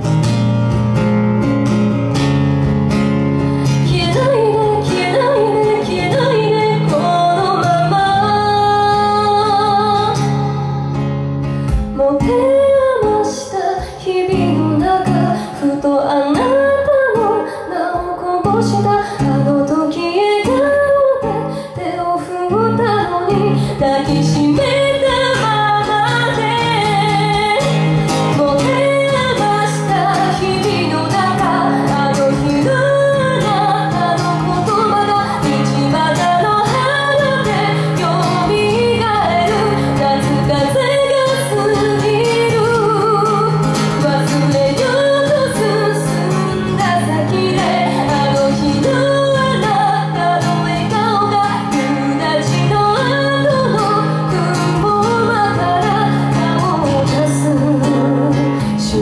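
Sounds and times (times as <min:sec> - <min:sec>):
guitar accompaniment: 0:00.0 - 0:59.0
woman singing into microphone: 0:03.6 - 0:59.0.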